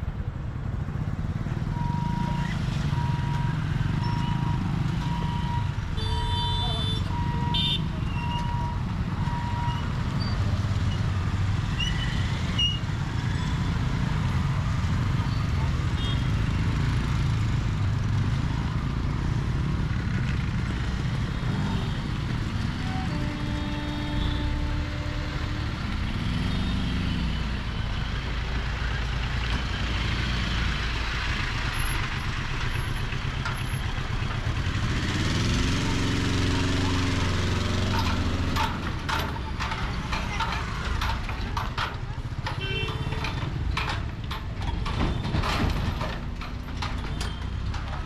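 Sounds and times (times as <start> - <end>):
motorcycle and scooter engines: 0.0 - 48.0
lorry engine revving: 34.5 - 41.0.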